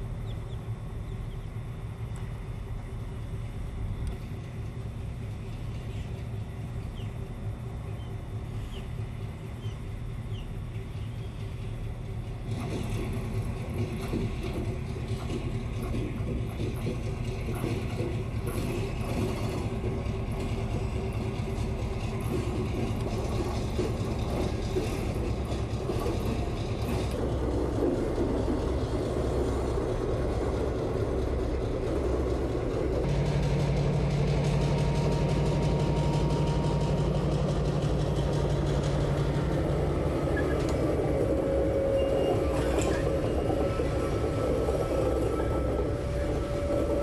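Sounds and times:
locomotive engine drone: 0.0 - 47.0
wheel and rail rattle: 10.0 - 47.0.

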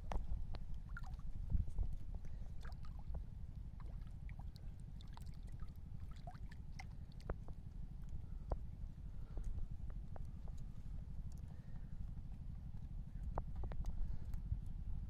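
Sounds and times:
fish splashing in water: 0.8 - 8.5.

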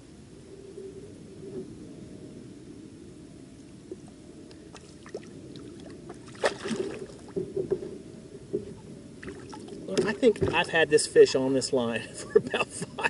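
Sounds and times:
low steady rumble: 0.0 - 13.0
fishing tackle knocks and rattles: 9.9 - 10.7.

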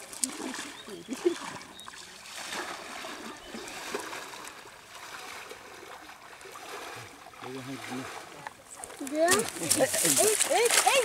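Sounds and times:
hands handling wet net: 0.0 - 5.9, 8.1 - 11.0.

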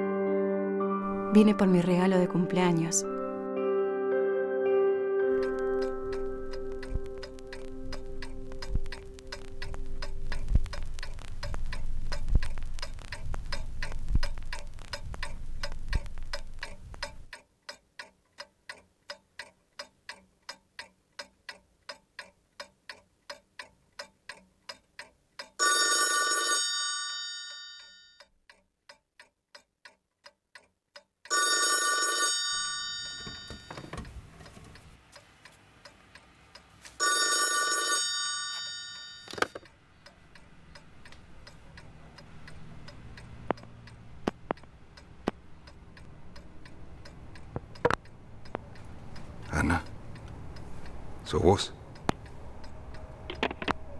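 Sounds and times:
alarm clock ticking: 5.3 - 34.0, 34.8 - 53.3
telephone bell ringing: 25.6 - 28.2, 31.3 - 33.8, 37.0 - 39.4.

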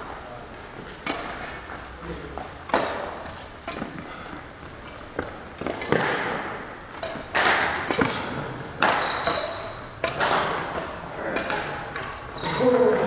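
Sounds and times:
racket hitting shuttlecock: 1.0 - 1.6, 2.7 - 4.1, 4.8 - 13.0
shoe squeak: 9.0 - 10.0, 12.4 - 12.9.

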